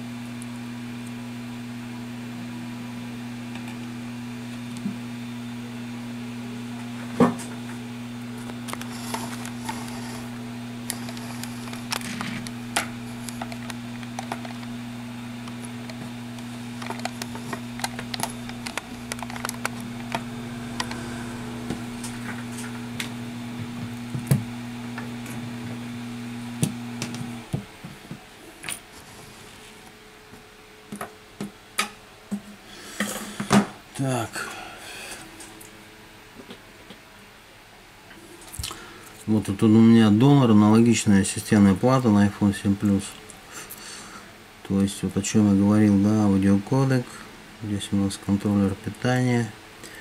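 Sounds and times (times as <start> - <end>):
small fan motor humming: 0.0 - 50.0
phone parts clicking and tapping: 10.9 - 14.7, 16.8 - 20.2.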